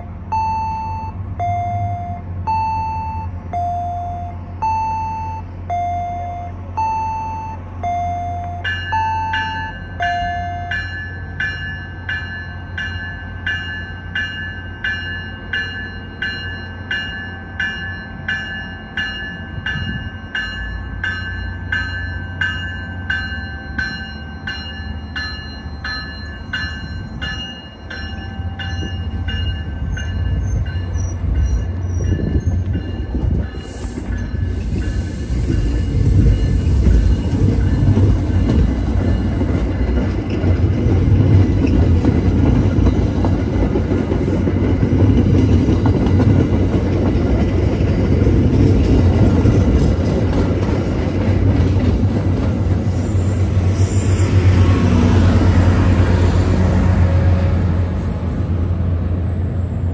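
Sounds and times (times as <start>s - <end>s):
train humming: 0.0s - 59.9s
bell ringing: 7.1s - 35.1s.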